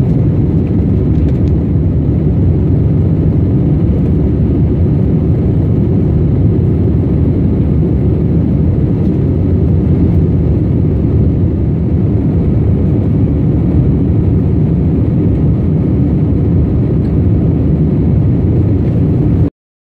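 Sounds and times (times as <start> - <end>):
jet engines roaring in cabin: 0.0 - 19.5.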